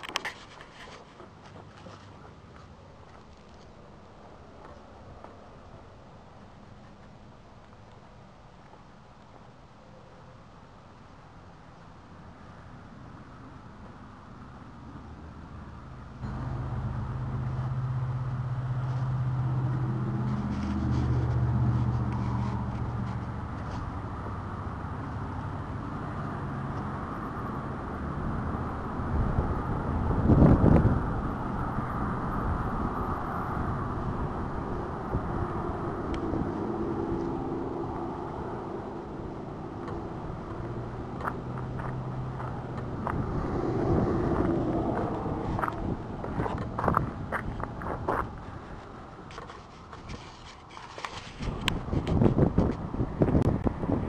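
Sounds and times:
vehicles driving past: 0.0 - 54.0
car engine running: 16.2 - 25.2.

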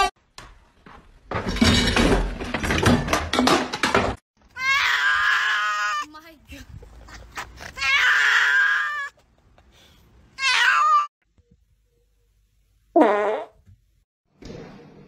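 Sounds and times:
cats meowing loudly: 4.6 - 6.1, 7.8 - 9.1, 10.4 - 11.1.

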